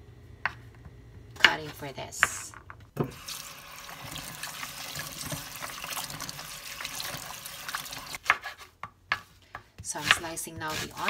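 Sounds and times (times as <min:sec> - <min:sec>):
tap water running into bowl: 0:03.0 - 0:08.2
knife chopping on wooden board: 0:08.2 - 0:11.0.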